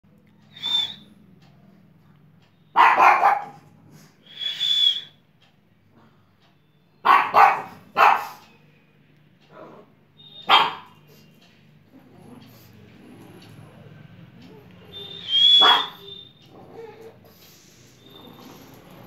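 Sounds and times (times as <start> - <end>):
dog barking: 2.7 - 3.7, 7.0 - 8.5, 10.4 - 11.0, 15.5 - 16.2.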